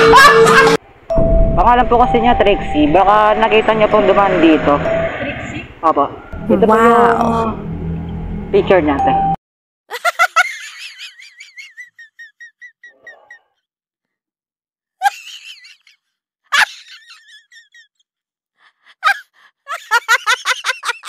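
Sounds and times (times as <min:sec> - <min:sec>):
women laughing: 0:09.9 - 0:13.4, 0:15.0 - 0:18.0, 0:18.7 - 0:21.0.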